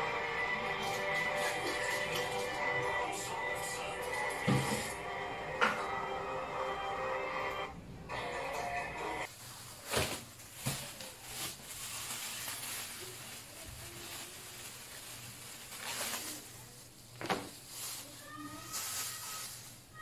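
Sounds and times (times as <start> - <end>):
plastic bag crinkling: 9.3 - 20.0.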